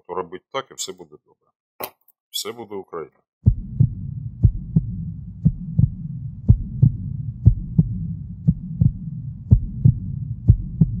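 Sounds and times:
heartbeat thumps: 0:03.4 - 0:11.0
steady low hum: 0:03.5 - 0:11.0.

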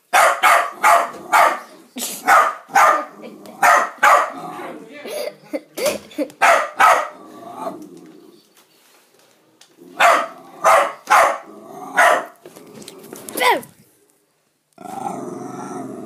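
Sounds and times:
small dog barking: 0:00.1 - 0:04.4, 0:06.4 - 0:07.2, 0:10.0 - 0:12.4.

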